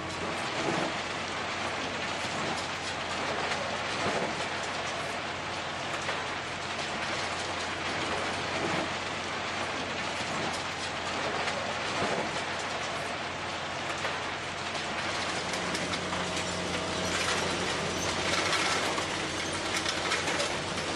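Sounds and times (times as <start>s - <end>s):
machine humming: 15.2s - 20.9s.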